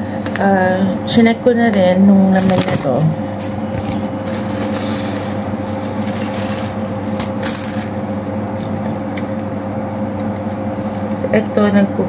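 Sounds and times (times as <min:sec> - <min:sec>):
electrical hum: 0:00.0 - 0:12.0
plastic packaging crinkling: 0:02.4 - 0:08.0.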